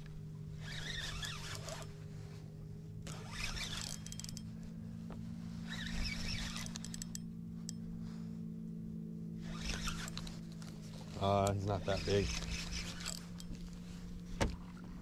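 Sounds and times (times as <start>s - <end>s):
trolling motor hum: 0.0s - 15.0s
fishing reel cranking: 0.6s - 1.9s, 3.1s - 4.5s, 5.7s - 7.8s, 9.4s - 10.3s, 11.8s - 13.6s.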